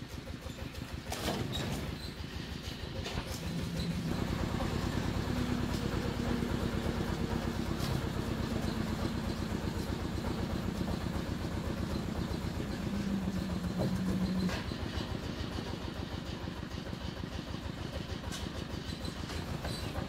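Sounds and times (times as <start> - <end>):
small engine running: 0.0 - 20.0.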